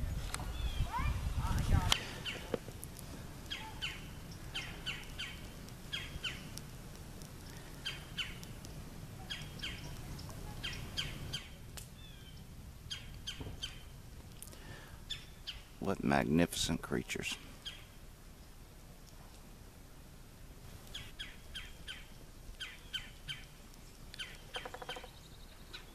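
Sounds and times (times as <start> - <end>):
woodpecker calling: 2.0 - 2.6, 3.4 - 6.7, 7.4 - 8.6, 9.2 - 14.0, 15.0 - 15.8, 17.6 - 18.0, 20.9 - 25.9
warbling bird call: 3.5 - 6.5, 7.6 - 8.4, 24.2 - 25.9.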